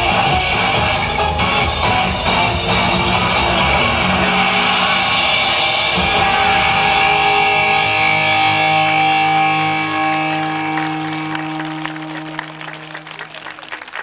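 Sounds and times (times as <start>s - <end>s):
electric guitar chord over loudspeakers: 0.0s - 13.5s
people clapping: 8.9s - 14.0s.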